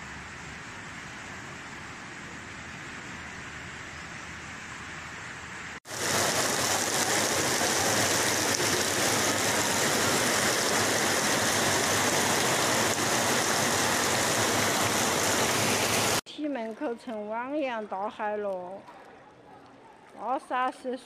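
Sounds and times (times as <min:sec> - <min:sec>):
floodwater rushing: 0:05.9 - 0:16.2.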